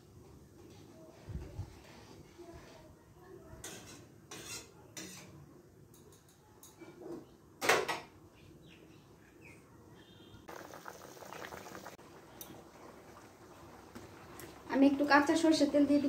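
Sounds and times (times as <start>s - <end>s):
metal spatula scraping in pan: 3.6s - 5.4s.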